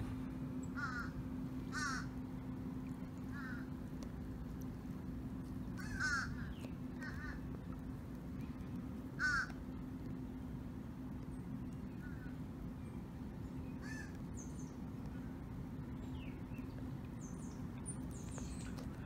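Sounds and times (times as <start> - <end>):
crow cawing: 0.8 - 2.1, 3.3 - 3.7, 5.8 - 7.4, 9.2 - 9.5
small birds chirping: 15.8 - 19.0.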